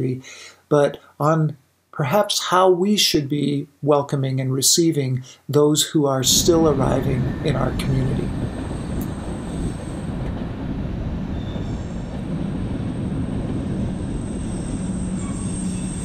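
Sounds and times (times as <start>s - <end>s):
freight train rumbling on tracks: 6.2s - 16.0s.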